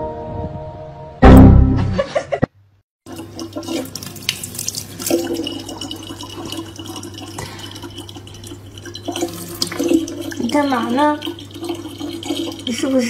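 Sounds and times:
faucet stream into bottle: 0:03.0 - 0:13.0.

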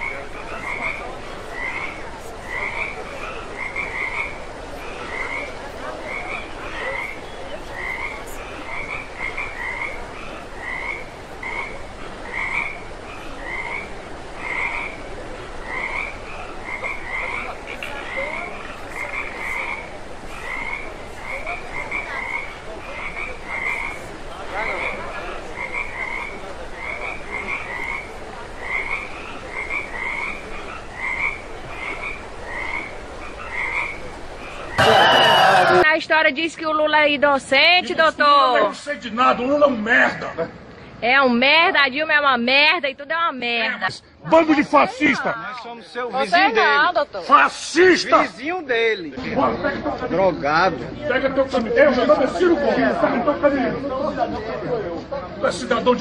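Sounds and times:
frog croaking: 0:00.0 - 0:35.9.

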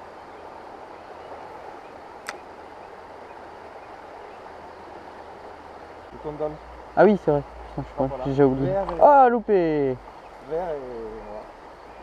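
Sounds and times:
flowing river water: 0:00.0 - 0:12.0
sharp click: 0:02.2 - 0:02.4.

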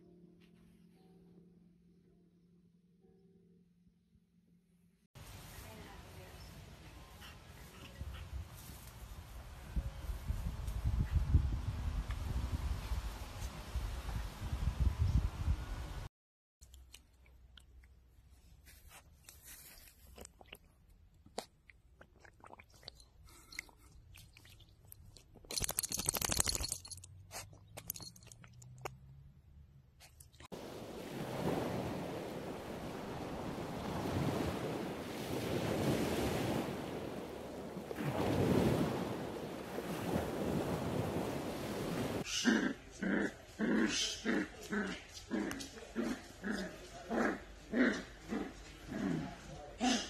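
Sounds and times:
wind on microphone: 0:09.6 - 0:16.1, 0:30.6 - 0:42.2.

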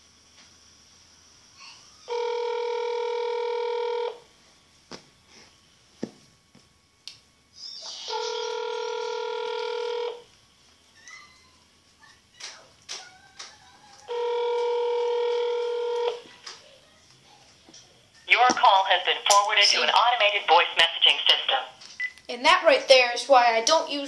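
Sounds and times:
telephone ringback tone: 0:02.1 - 0:04.2, 0:08.1 - 0:10.2, 0:14.1 - 0:16.2.

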